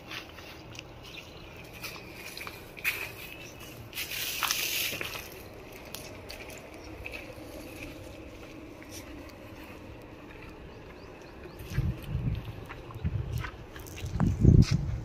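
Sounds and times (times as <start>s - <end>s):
dry brush rustling: 0.0s - 10.4s
footsteps crunching on dry leaves: 0.0s - 14.9s.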